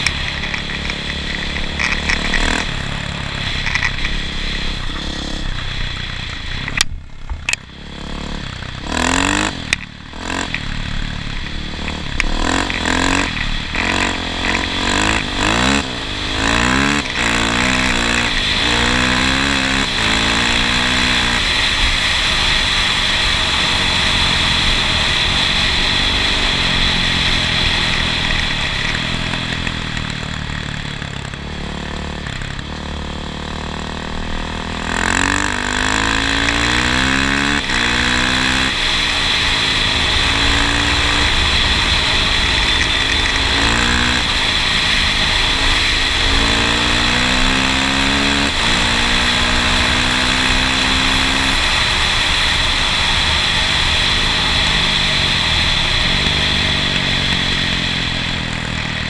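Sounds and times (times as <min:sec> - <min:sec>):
steady low rush: 0:00.0 - 0:09.1
vehicle engine running: 0:00.0 - 0:59.0.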